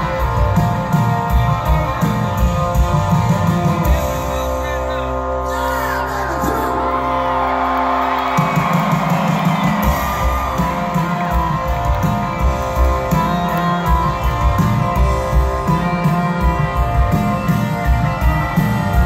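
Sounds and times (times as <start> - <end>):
live rock band playing: 0.0 - 19.0
audience whooping and cheering: 6.1 - 19.0.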